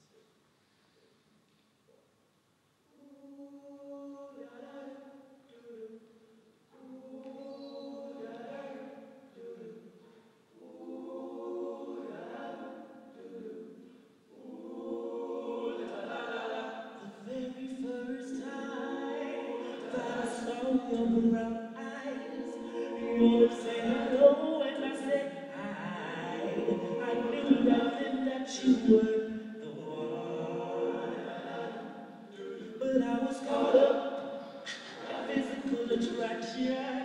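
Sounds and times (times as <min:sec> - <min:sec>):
men singing in close harmony: 0:03.5 - 0:05.9, 0:06.8 - 0:09.8, 0:10.6 - 0:13.8, 0:14.4 - 0:37.0
soloist singing into microphone: 0:17.0 - 0:30.3.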